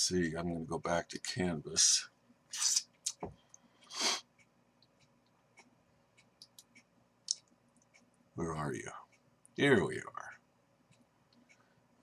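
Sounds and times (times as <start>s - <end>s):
man breathing sharply through nose: 3.6s - 4.2s.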